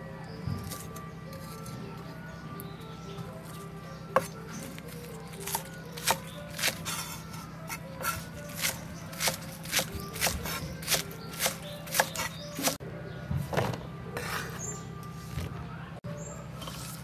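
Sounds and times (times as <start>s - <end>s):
background music: 0.0s - 17.0s
cleaver chopping on wooden board: 5.4s - 7.0s, 7.7s - 12.8s.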